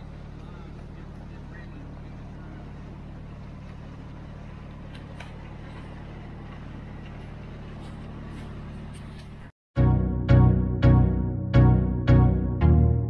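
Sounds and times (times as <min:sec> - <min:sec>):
water and wind hiss: 0:00.0 - 0:09.5
boat engine humming: 0:00.0 - 0:13.0.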